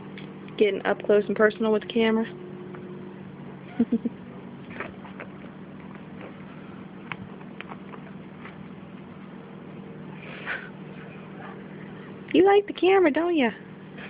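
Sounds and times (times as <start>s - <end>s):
low hum: 0.0s - 14.0s.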